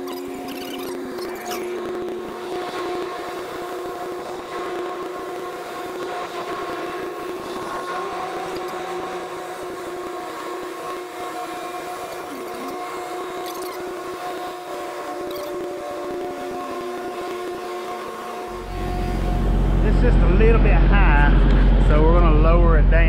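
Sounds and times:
truck engine from inside cab: 18.5 - 23.0.

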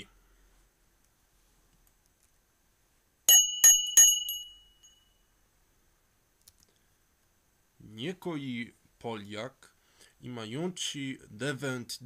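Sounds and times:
metallic bell rings: 3.3 - 5.3.

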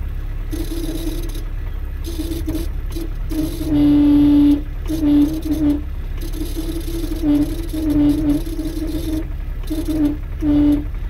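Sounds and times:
low engine rumble: 0.0 - 11.0
car horn toots: 0.5 - 1.4, 2.0 - 11.0.

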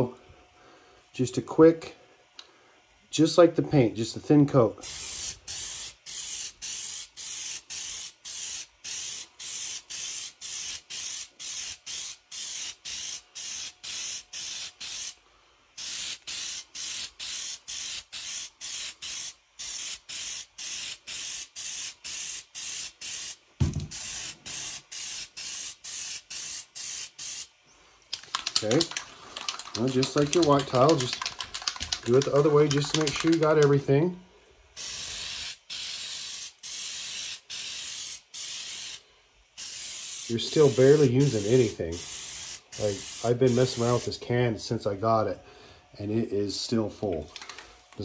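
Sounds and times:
aerosol spray puffs: 4.8 - 15.2, 15.8 - 33.7, 34.8 - 39.0, 39.6 - 44.2
thump: 23.6 - 24.0.

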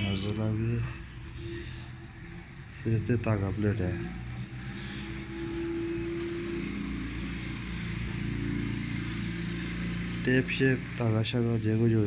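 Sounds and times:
held tone: 0.0 - 3.2, 3.9 - 9.6
motor engine hum: 0.0 - 12.0.

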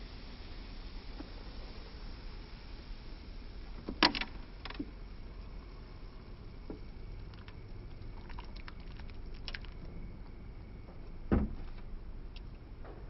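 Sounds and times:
dull thump: 10.9 - 11.8.

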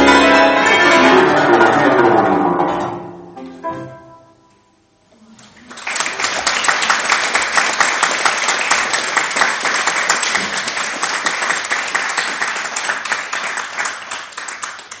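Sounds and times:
audience applauding: 5.6 - 15.0.

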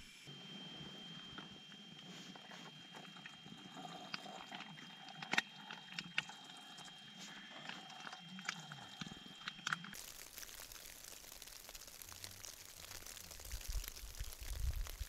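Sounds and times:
liquid trickling into kettle: 3.0 - 15.0.

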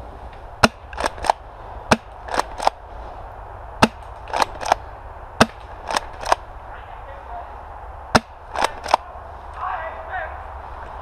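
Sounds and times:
airsoft shotguns firing: 0.6 - 2.8, 3.8 - 4.8, 5.4 - 6.4, 8.1 - 9.0.

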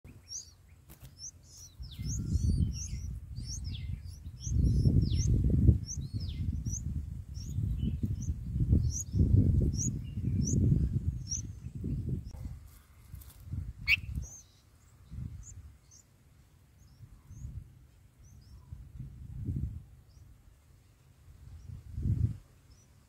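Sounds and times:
nestlings chirping: 0.1 - 17.6, 18.2 - 18.8.

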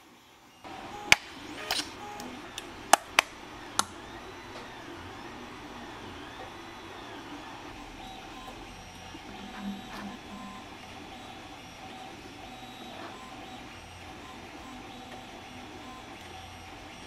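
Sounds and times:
faint wavering tones: 9.3 - 10.9.

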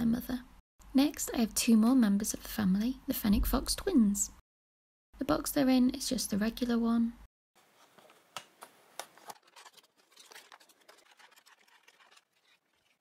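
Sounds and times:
cardboard box handling scratches: 9.1 - 13.0.

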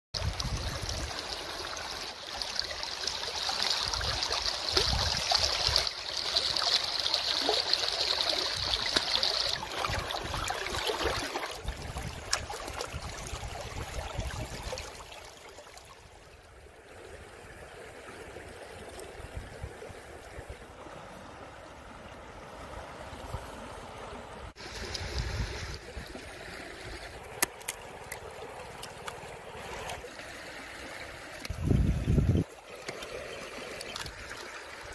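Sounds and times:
river water flowing and lapping: 0.2 - 34.9.

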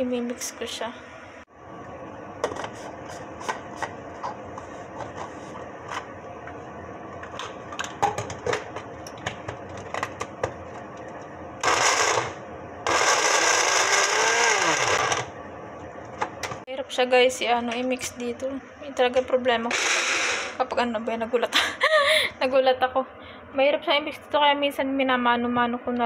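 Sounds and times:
blender motor running: 11.6 - 15.3, 19.7 - 20.6.

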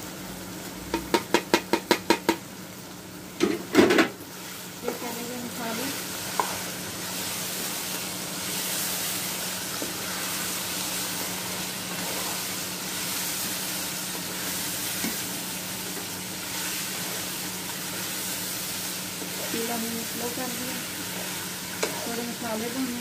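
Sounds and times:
food sizzling in hot oil: 0.0 - 23.0
spatula scraping pan: 6.2 - 13.6, 16.5 - 22.5.

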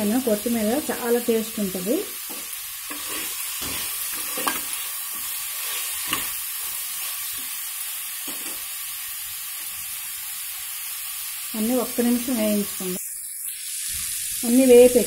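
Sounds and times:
vegetables sizzling in hot oil: 0.0 - 15.0
spoon scraping a pan: 2.2 - 7.4.

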